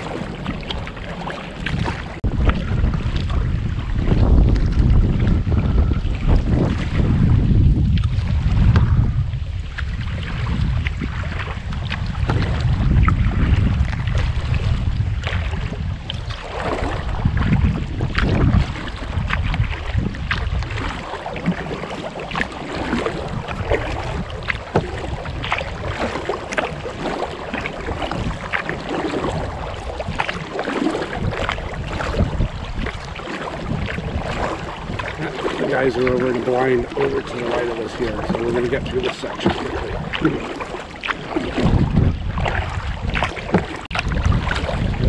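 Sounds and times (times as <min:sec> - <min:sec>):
lapping water: 0:00.0 - 0:45.0
paddle strokes splashing water: 0:00.0 - 0:45.0
wind buffeting microphone: 0:00.0 - 0:45.0.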